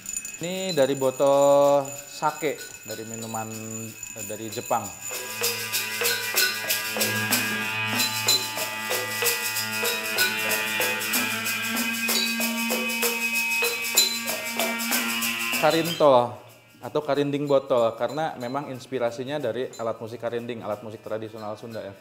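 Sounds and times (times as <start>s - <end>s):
rattling beat: 0.0s - 16.1s
bowed string instrument sliding notes: 5.0s - 16.3s.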